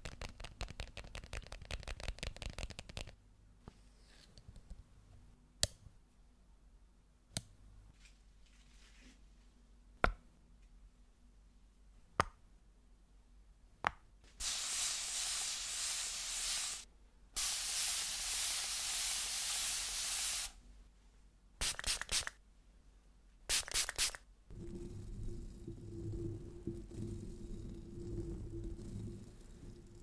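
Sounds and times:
long hisses: 14.4s - 20.6s.

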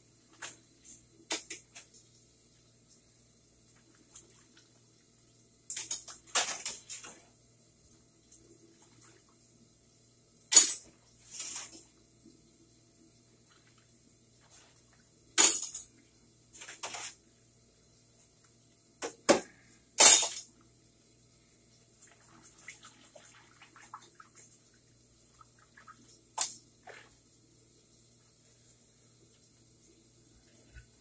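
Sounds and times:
water splashing in sink: 21.8s - 27.3s.

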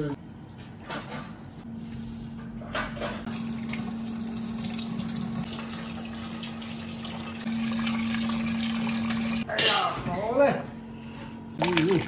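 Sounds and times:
tap water running: 3.3s - 9.5s.

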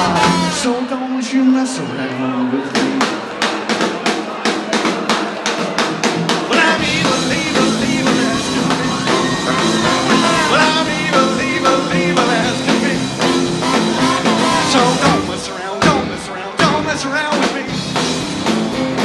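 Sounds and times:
drums: 0.0s - 19.0s
live rock band with horns: 0.0s - 19.0s.

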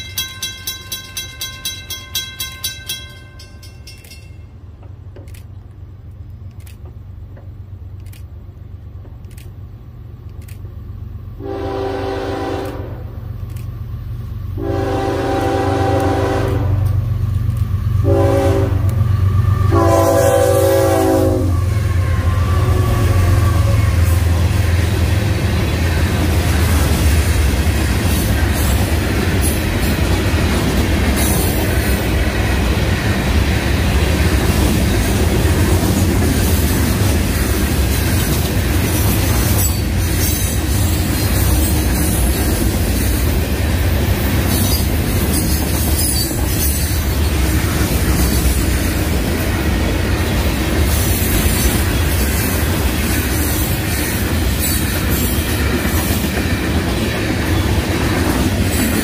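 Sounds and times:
wheel clicks on rail joints: 0.0s - 10.8s
train wheels rumbling on rail: 0.0s - 59.0s.

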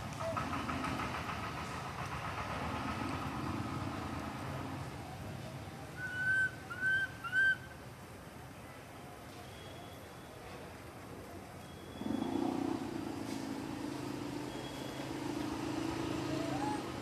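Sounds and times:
infant monkey squealing: 16.3s - 17.0s.

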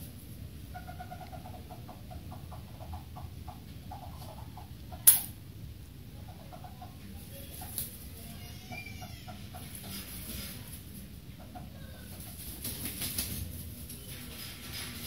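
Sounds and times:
wings flapping: 12.1s - 15.0s.

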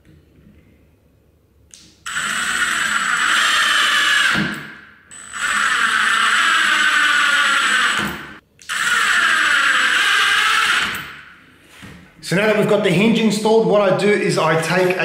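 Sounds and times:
impact driver whining: 2.1s - 11.4s.

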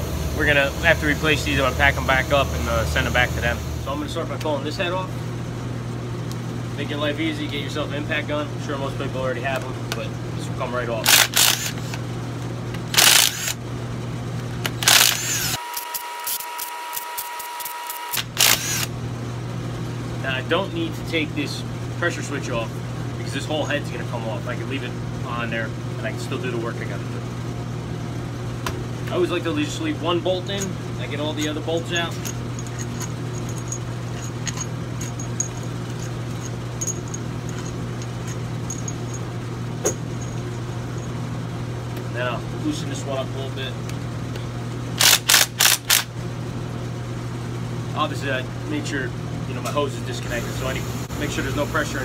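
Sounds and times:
low machine hum: 0.0s - 52.0s
impact gun motor whine: 11.0s - 12.0s, 12.8s - 13.6s, 14.6s - 19.0s, 45.0s - 46.1s
metallic clicks of bolts handled: 31.4s - 39.2s.

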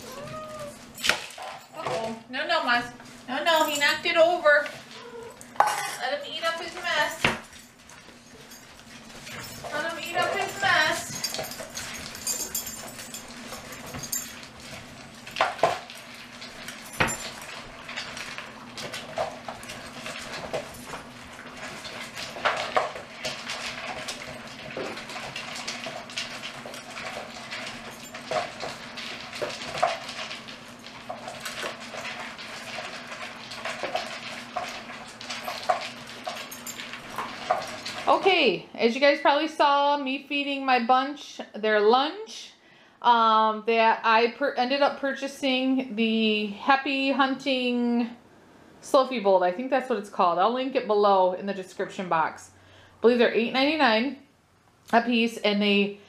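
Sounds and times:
pets eating kibble from bowls: 3.0s - 38.4s
bowls clinking and rattling: 3.4s - 38.4s.

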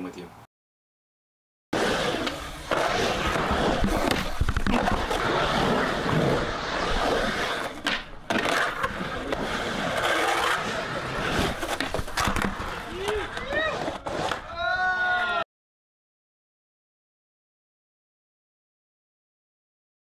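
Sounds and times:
skateboard wheels rolling on concrete: 1.8s - 15.4s
skateboard knocks: 11.7s - 13.7s.

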